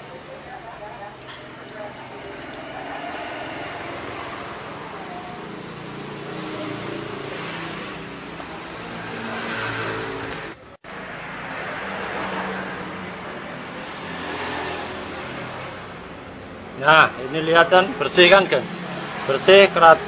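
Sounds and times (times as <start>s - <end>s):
water rushing hiss: 1.4s - 16.2s.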